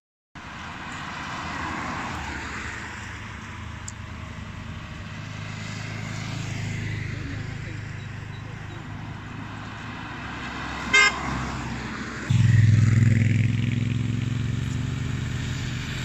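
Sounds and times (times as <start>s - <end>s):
car horn toot: 10.9s - 11.3s
motorcycle engine running: 12.3s - 15.1s.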